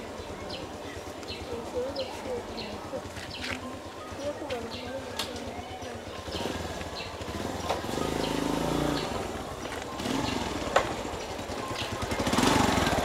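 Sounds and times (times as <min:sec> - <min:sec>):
vehicle engine humming: 0:00.0 - 0:13.0.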